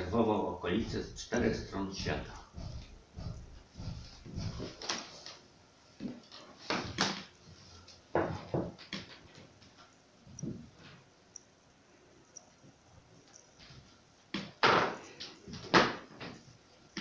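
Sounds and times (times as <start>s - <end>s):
wooden chair knocks and scuffs: 8.1s - 9.2s.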